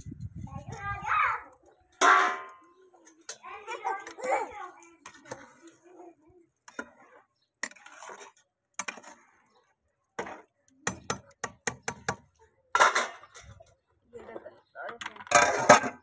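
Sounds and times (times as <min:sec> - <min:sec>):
steel kitchenware clinking: 0:02.0 - 0:05.6.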